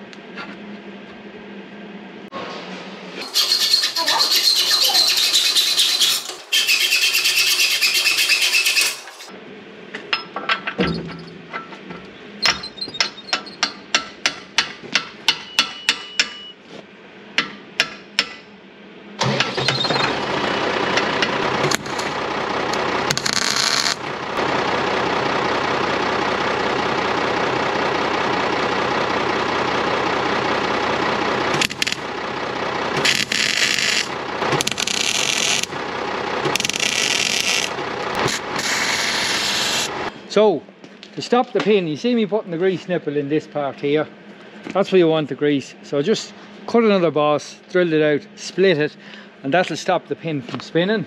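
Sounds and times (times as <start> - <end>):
ringing metal strikes: 15.3 - 16.6
power tool motor running: 21.5 - 24.2, 31.4 - 32.2, 32.9 - 40.1.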